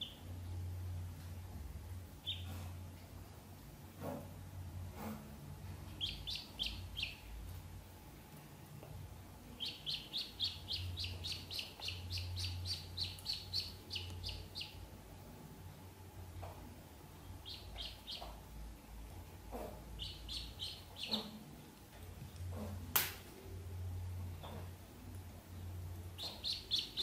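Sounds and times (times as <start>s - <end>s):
ducklings peeping: 2.2s - 2.8s, 5.8s - 7.5s, 9.5s - 15.0s, 17.2s - 18.6s, 19.4s - 21.7s, 26.1s - 27.0s.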